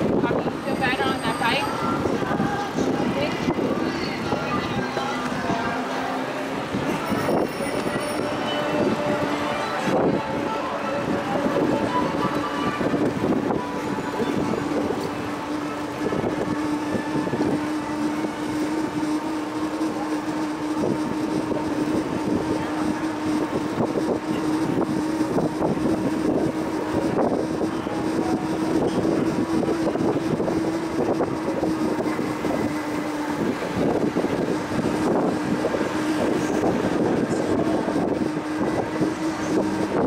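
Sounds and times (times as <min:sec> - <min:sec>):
wind rumble on microphone: 0:00.0 - 0:05.8, 0:06.5 - 0:40.0
bicycle road noise: 0:00.0 - 0:40.0.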